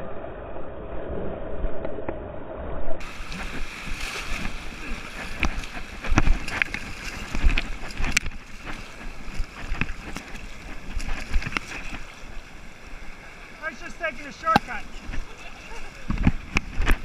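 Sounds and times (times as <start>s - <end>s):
wind buffeting microphone: 3.0s - 13.6s, 14.5s - 17.0s
river water rushing and splashing: 3.0s - 17.0s.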